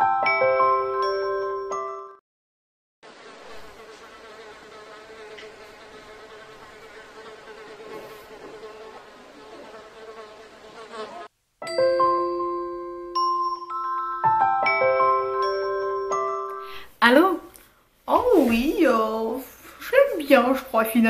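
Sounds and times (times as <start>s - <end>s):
fly buzzing: 3.0s - 11.3s
short chiming jingle: 11.6s - 16.6s.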